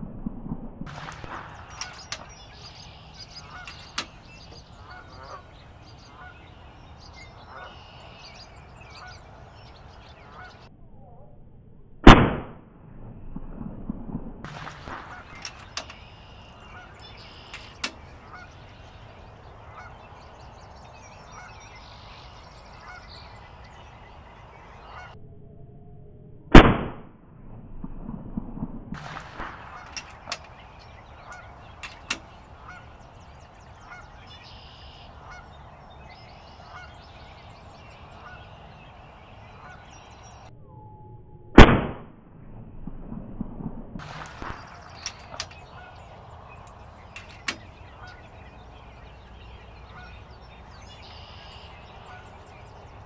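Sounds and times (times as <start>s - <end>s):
air rifle shots: 0.9s - 6.4s, 12.0s - 12.6s, 14.4s - 18.7s, 26.5s - 27.0s, 29.0s - 33.2s, 41.6s - 42.1s, 44.0s - 48.8s
faint honking calls: 0.9s - 10.7s, 14.5s - 25.2s, 29.0s - 40.5s, 44.0s - 53.0s.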